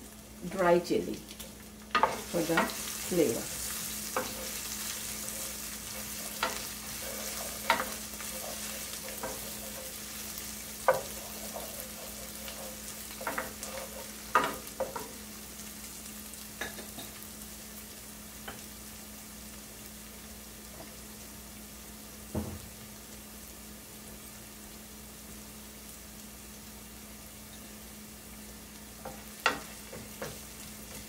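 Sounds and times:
spices sizzling in hot oil: 0:00.0 - 0:31.0
wooden spatula scraping pan: 0:02.0 - 0:15.2.

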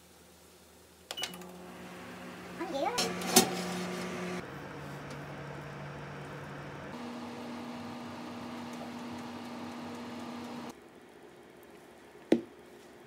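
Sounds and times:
oven fan and motor hum: 0:01.2 - 0:10.8.

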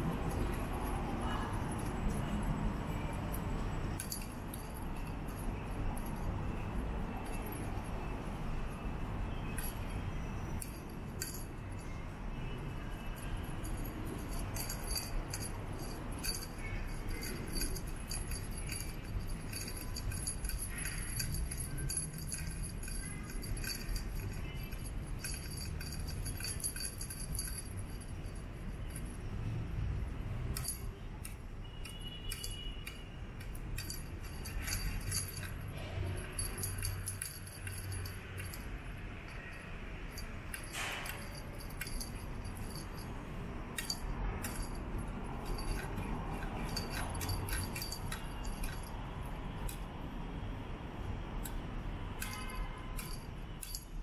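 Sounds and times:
small bell jingling: 0:00.0 - 0:29.9, 0:30.5 - 0:50.1, 0:52.2 - 0:54.0.

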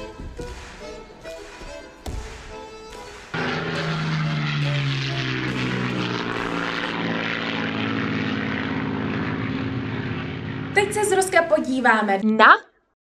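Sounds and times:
propeller airplane flying past: 0:02.9 - 0:12.1.

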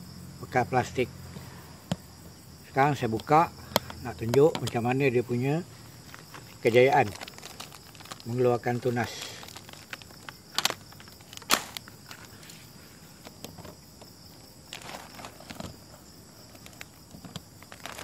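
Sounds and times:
plastic sharp crackles: 0:03.2 - 0:04.8, 0:06.0 - 0:12.6, 0:13.2 - 0:18.0
plastic bag crinkling: 0:05.8 - 0:12.6, 0:13.2 - 0:18.0.

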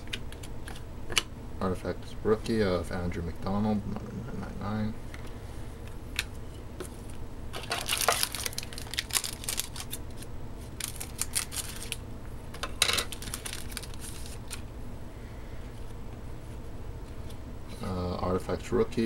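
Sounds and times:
foil wrapper crinkling: 0:07.6 - 0:12.0, 0:12.8 - 0:14.6
scissors cutting foil: 0:10.8 - 0:12.0.

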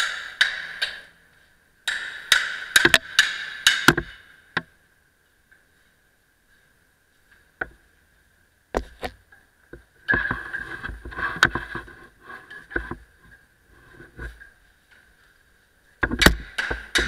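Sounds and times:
clattering and scraping: 0:10.0 - 0:15.2.

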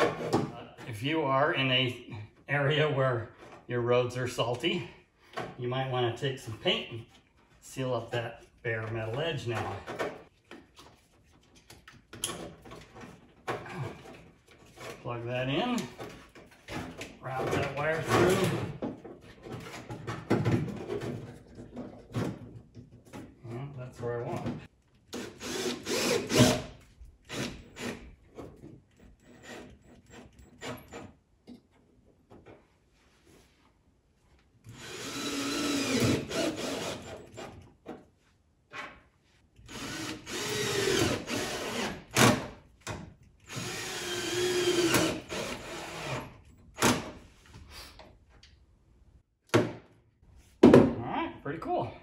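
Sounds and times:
cordless drill whining: 0:25.2 - 0:26.6, 0:34.7 - 0:37.4, 0:39.7 - 0:42.1, 0:43.5 - 0:46.3.

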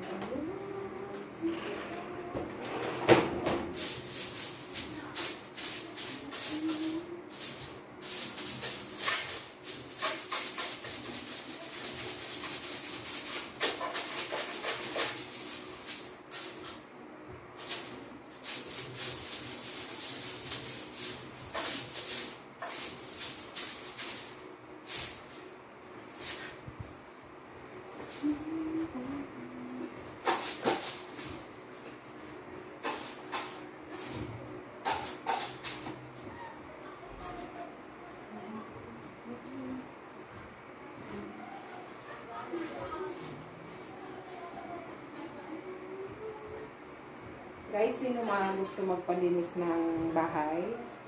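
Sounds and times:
broom brushing window frame: 0:03.7 - 0:16.9, 0:17.6 - 0:27.0, 0:30.1 - 0:36.6, 0:41.5 - 0:44.8.

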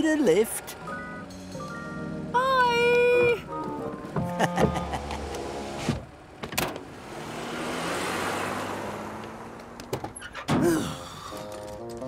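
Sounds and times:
car driving off: 0:03.1 - 0:12.0.

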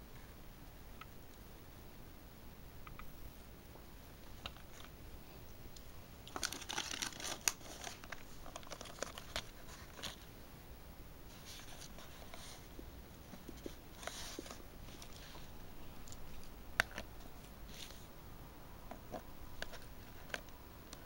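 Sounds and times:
plastic packaging crinkling: 0:06.2 - 0:10.3.

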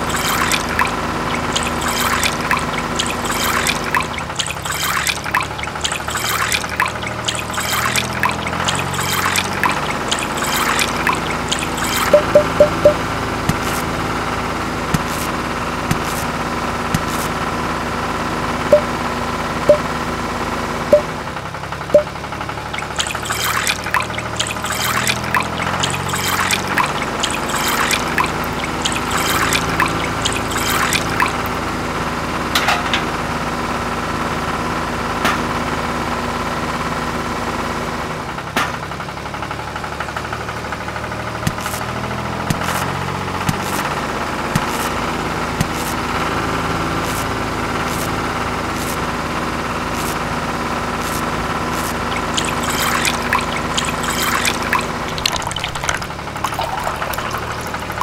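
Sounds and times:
juice trickling: 0:00.0 - 0:13.9, 0:22.0 - 0:31.7, 0:51.1 - 0:58.0.

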